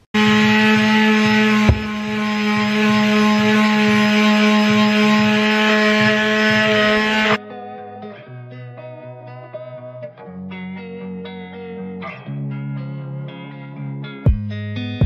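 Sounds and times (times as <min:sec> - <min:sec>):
power tool motor running: 0:00.2 - 0:07.4.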